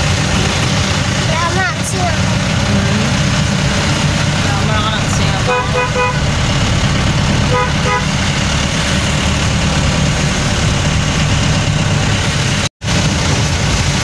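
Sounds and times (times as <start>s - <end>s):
heavy rain: 0.0s - 14.0s
vehicle engine and wet-road rumble: 0.0s - 14.0s
car horn tooting: 4.9s - 8.6s.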